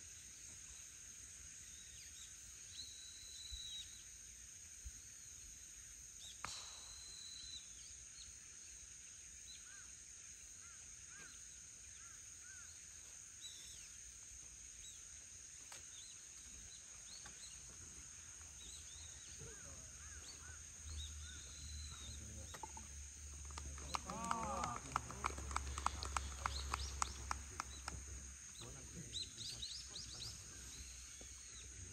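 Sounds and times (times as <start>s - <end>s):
high-pitched insect drone: 0.0s - 31.9s
bird chirps: 6.2s - 8.4s, 18.6s - 31.9s.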